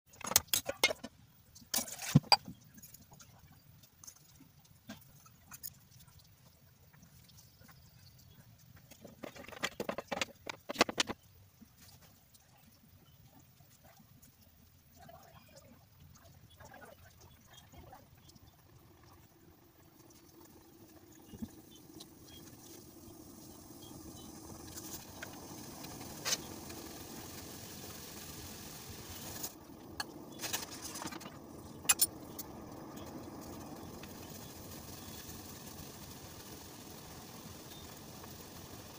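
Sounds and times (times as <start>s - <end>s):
water boiling in saucepan: 0.2s - 38.9s
faint small ticks: 2.5s - 9.0s
gas whoosh igniting: 23.5s - 38.9s.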